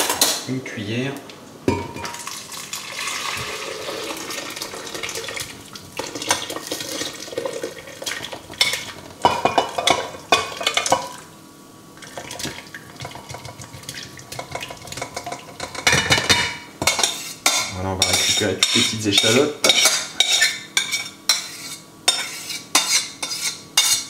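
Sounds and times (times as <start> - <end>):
broth pouring: 2.2 - 8.4
pan clattering against jug: 12.2 - 20.5
metal spoon scraping saucepan: 15.0 - 24.0.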